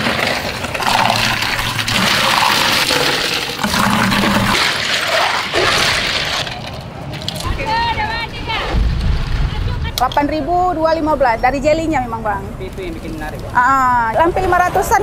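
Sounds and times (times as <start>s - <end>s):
drink rushing and sloshing: 0.0s - 7.5s.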